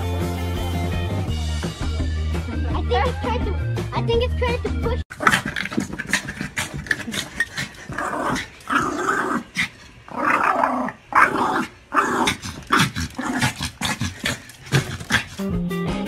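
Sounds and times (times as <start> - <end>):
small dog growling: 5.1 - 15.5
small dog barking: 10.8 - 15.5.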